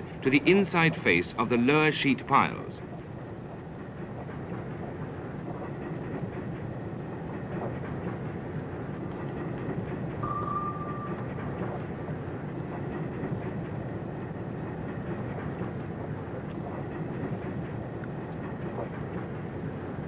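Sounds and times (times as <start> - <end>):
mechanical rumble: 1.9 - 20.0
short high tone: 10.2 - 11.4.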